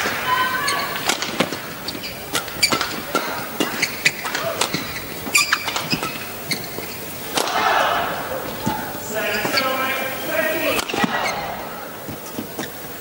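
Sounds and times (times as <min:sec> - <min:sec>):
crowd noise: 0:00.0 - 0:13.0
shoes squeaking on court: 0:00.4 - 0:13.0
rackets striking shuttlecock: 0:00.8 - 0:06.3, 0:07.2 - 0:09.6.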